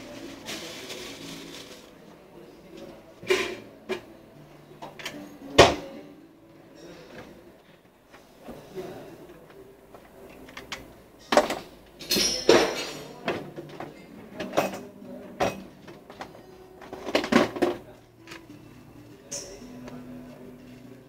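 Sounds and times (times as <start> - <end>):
hard objects knocking and clattering: 15.4 - 17.9.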